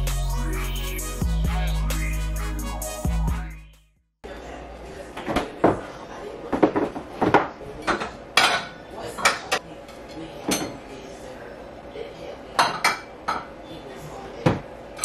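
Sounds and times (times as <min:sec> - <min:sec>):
dishes and containers clattering: 0:06.5 - 0:09.6.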